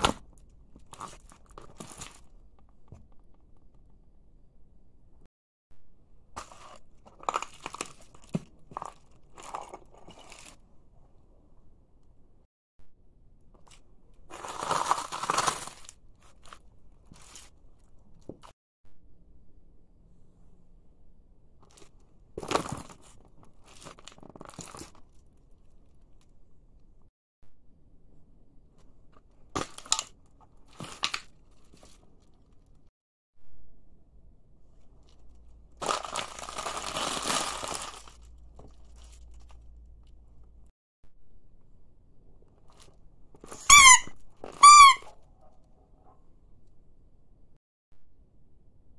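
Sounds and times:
chip bag crinkling and crunching: 0.0s - 2.4s, 6.4s - 10.6s, 13.6s - 18.4s, 21.7s - 26.2s, 35.0s - 40.2s
shoe crunching puffed snacks: 14.3s - 16.5s, 35.7s - 39.6s
crumbs crackling under sole: 35.0s - 40.2s.

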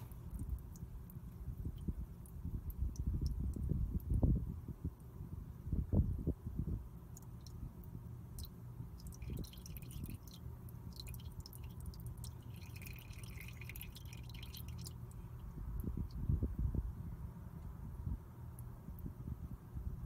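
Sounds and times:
oil dripping into bucket: 0.0s - 4.3s, 7.0s - 16.2s
low background rumble: 0.0s - 20.0s.

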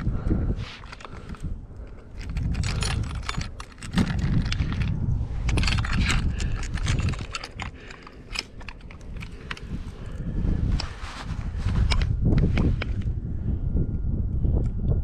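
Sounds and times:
wind rumble on microphone: 0.0s - 15.0s
fish gripper clicking and rattling: 0.8s - 10.2s.

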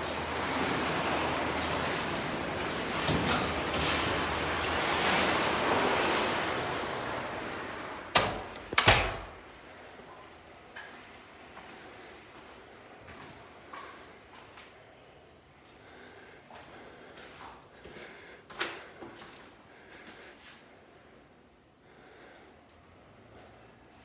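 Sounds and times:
door banging shut: 8.1s - 9.4s.

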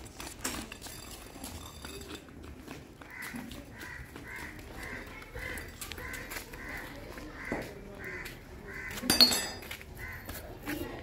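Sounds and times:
crow cawing: 3.0s - 9.1s, 10.0s - 10.3s.

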